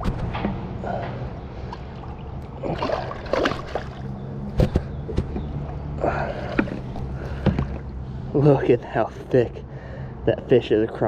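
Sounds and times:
water splashing and sloshing: 0.0 - 8.5
steady low hum: 0.0 - 11.0.

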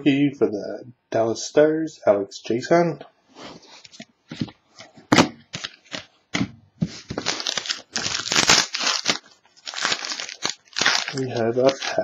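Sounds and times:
foil wrappers crinkling and tearing: 5.5 - 6.1, 7.0 - 12.0.

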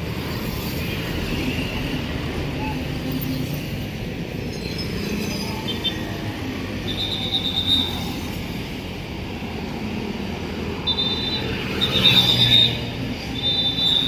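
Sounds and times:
cars passing: 0.0 - 14.0
motorbikes passing: 0.0 - 14.0
shrill trilling whistle blasts: 10.8 - 14.0.

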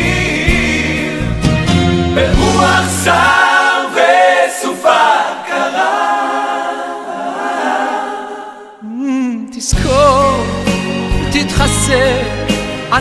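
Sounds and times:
voices singing without instruments: 0.0 - 10.7.

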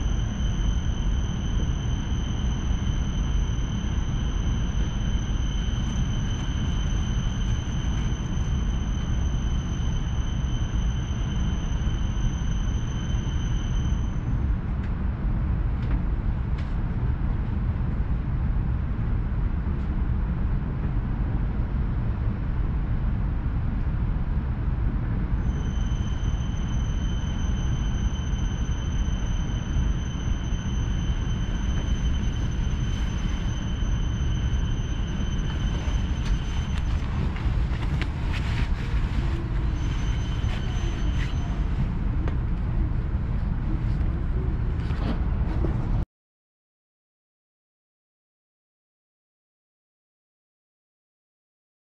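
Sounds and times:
train low rumble: 0.0 - 46.0
high-pitched steady tone: 25.4 - 41.7.

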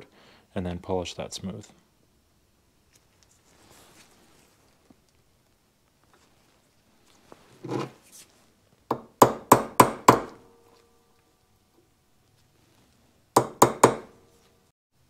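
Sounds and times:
hammer striking steel punch: 8.9 - 10.5.

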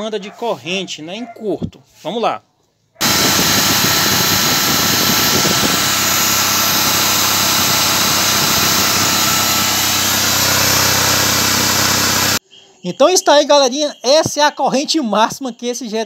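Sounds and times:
electric drill running: 3.0 - 12.4
generator whine: 3.0 - 12.4.

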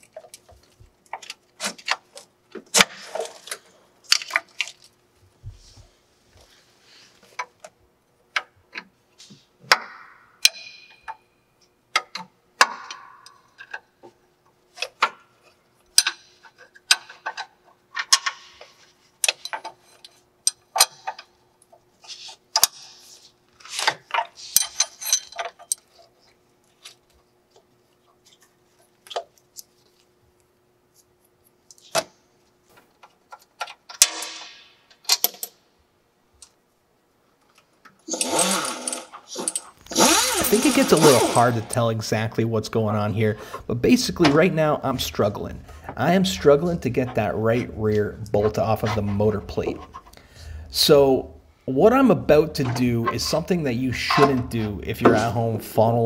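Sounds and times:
hardware rattling: 38.1 - 41.7.

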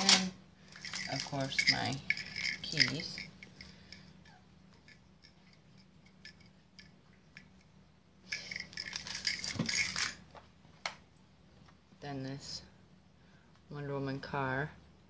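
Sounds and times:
keys jangling: 0.7 - 3.5, 8.3 - 10.2.

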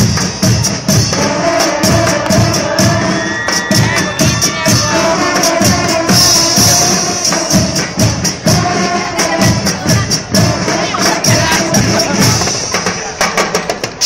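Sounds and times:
snare and bass drums: 0.0 - 14.0.

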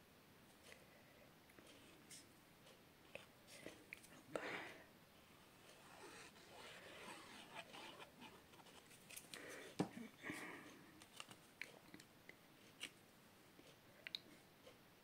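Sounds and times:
paper rustling: 5.8 - 9.6, 11.0 - 11.4.

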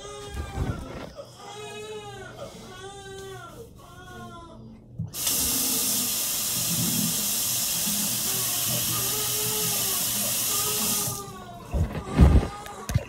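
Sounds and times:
tap water running into sink: 5.2 - 11.3.

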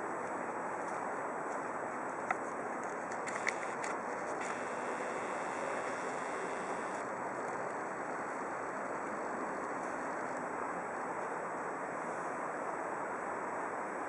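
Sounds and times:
faint steady high tone: 4.5 - 7.0.

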